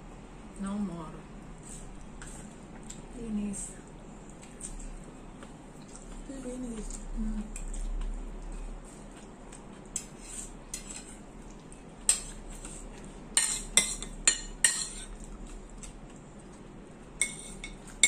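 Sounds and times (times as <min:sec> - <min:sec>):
cutlery clinking on metal bowl: 0:13.3 - 0:15.2, 0:17.2 - 0:18.0.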